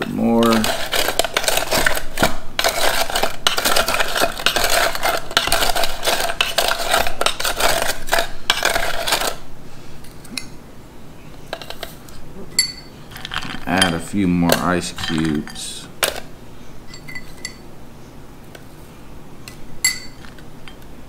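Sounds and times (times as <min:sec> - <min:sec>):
ice clinking: 0:00.0 - 0:09.4, 0:12.6 - 0:16.3, 0:16.9 - 0:17.6, 0:19.8 - 0:20.8
spoon stirring ice in metal can: 0:00.0 - 0:09.4, 0:13.1 - 0:16.3.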